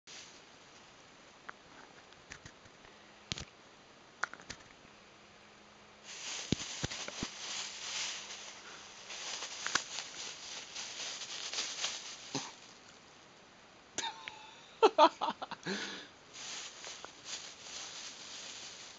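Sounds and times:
plastic bag crinkling: 6.1 - 13.0, 16.4 - 18.9.

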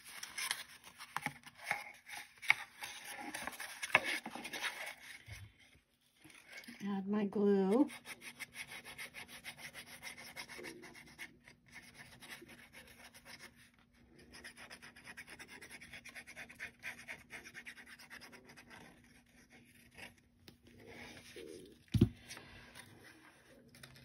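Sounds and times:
fingers rubbing paper: 7.8 - 13.6.

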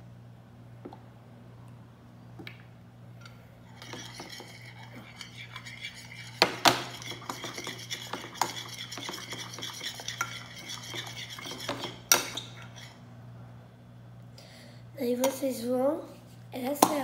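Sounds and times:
spoon stirring slime: 3.7 - 13.0.

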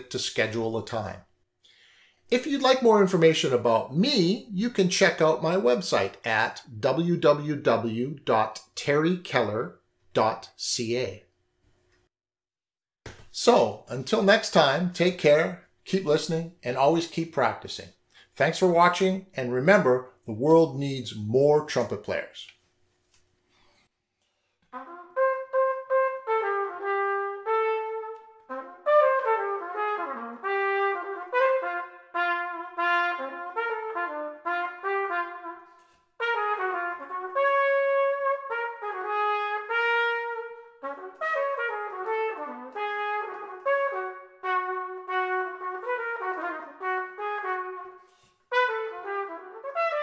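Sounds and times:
solo trumpet melody: 24.7 - 50.0.

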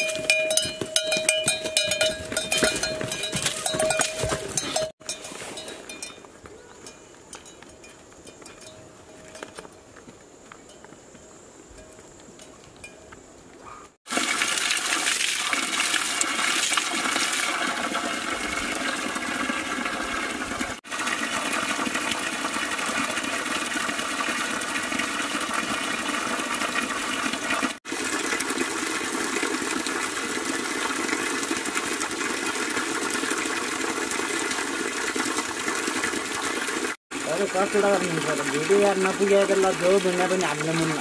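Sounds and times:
water splashing into a pool: 14.0 - 41.0
water pouring from a pipe: 14.1 - 41.0.

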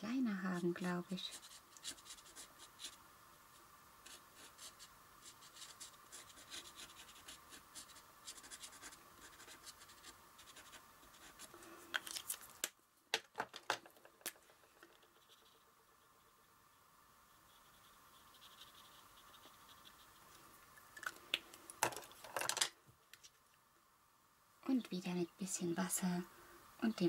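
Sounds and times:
marker scratching on paper: 1.3 - 3.0, 4.0 - 11.5, 15.1 - 16.2, 17.3 - 20.2.

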